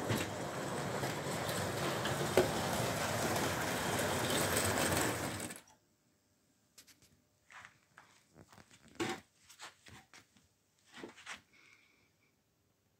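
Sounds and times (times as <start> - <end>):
model train whirring rattle: 0.0 - 5.7.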